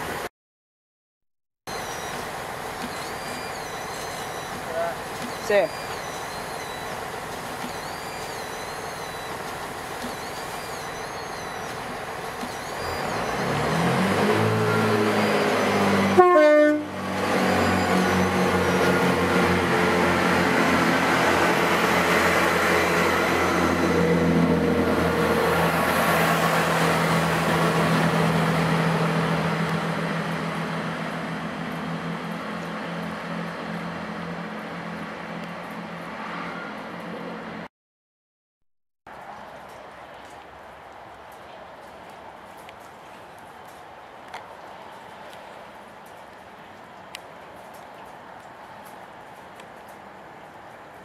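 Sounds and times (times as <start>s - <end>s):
diesel train engines revving: 1.7s - 37.7s.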